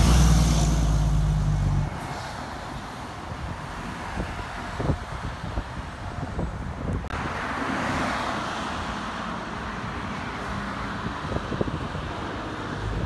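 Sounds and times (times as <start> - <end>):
truck engine rumble: 0.0 - 7.2
hiss of passing traffic: 0.0 - 13.0.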